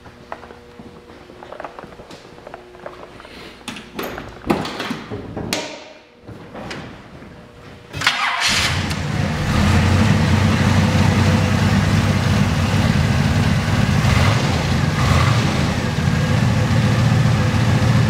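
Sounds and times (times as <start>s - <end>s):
car engine idling: 8.7s - 18.0s.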